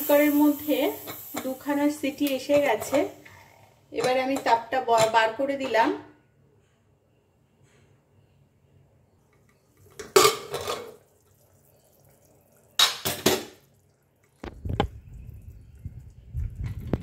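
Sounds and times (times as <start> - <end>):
metal lid clatter and scraping: 10.0 - 11.0.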